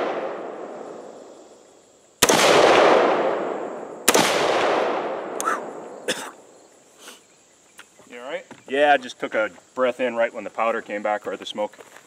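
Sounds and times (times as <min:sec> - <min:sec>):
rifle shot with echo: 0:00.0 - 0:01.4, 0:02.2 - 0:06.0.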